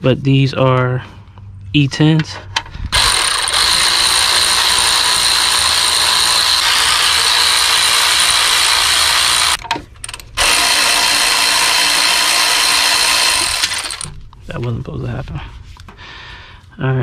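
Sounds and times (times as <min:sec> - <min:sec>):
electric ratchet running: 0:02.9 - 0:14.2.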